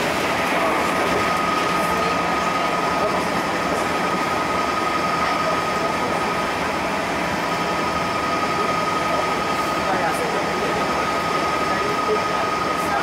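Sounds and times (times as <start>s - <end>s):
thin steady whine: 0.0s - 13.0s
train wheels on track: 0.0s - 13.0s.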